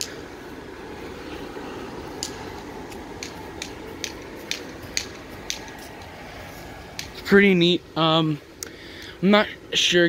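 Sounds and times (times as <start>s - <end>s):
blower fans whooshing hum: 0.0s - 10.0s
light ticks: 2.1s - 6.1s, 8.6s - 9.1s.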